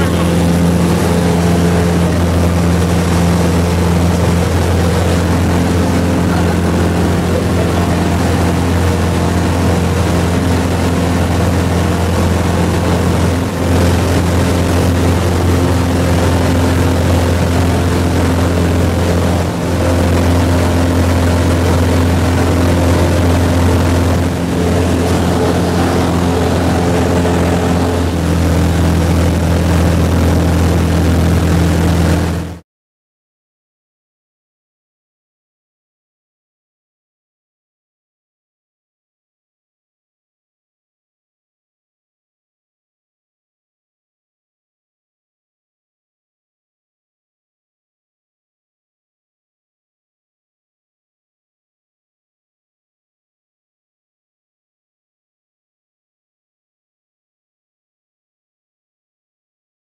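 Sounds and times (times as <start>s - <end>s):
plane engine and propeller: 0.0s - 32.6s.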